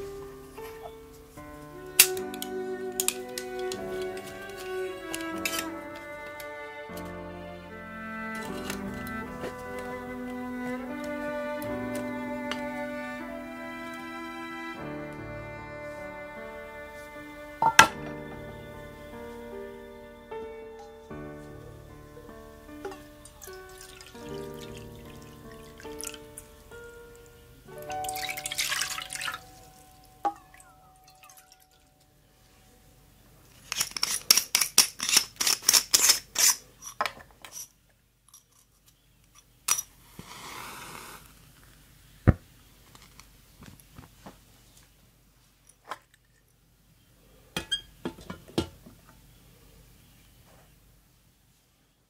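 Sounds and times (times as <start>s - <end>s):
metal cookware clinking: 17.6s - 18.0s, 47.6s - 48.8s
water poured into metal tin: 22.9s - 26.4s, 27.9s - 29.5s
match striking: 39.7s - 41.7s.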